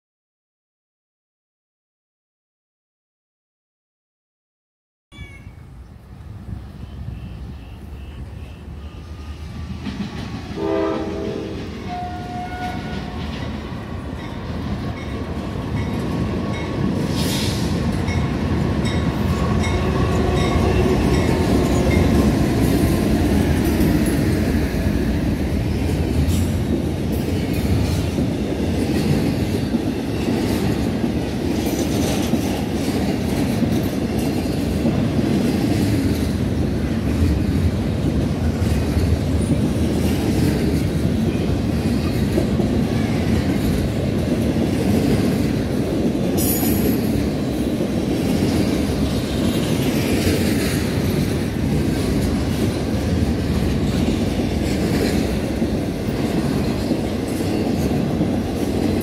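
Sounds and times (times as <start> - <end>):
freight train rumbling by: 5.5 - 59.0
train horn: 6.8 - 9.6, 10.5 - 13.3.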